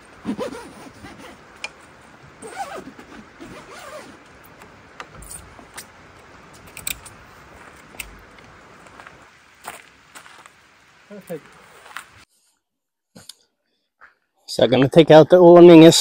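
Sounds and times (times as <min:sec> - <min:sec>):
zipper on tent fabric: 0:00.2 - 0:01.5, 0:02.4 - 0:04.2.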